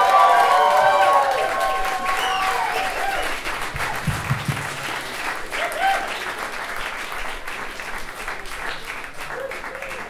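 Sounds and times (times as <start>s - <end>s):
audience applauding: 0.0s - 10.0s
low thumps: 3.7s - 5.0s.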